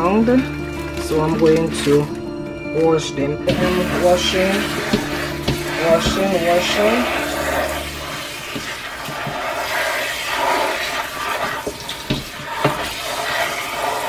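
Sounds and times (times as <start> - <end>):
sink sprayer spraying water: 3.5 - 14.0.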